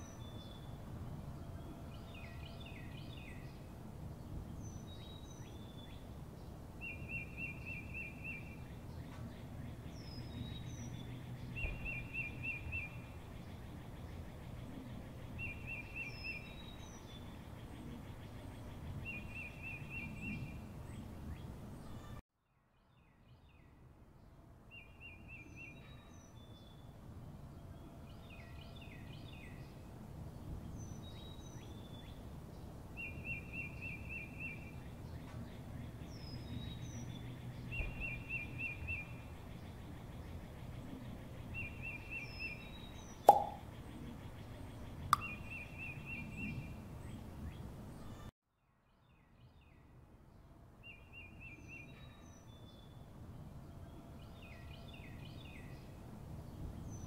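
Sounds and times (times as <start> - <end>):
outdoor background noise: 0.0 - 57.0
high brief bird chirps: 43.3 - 43.6.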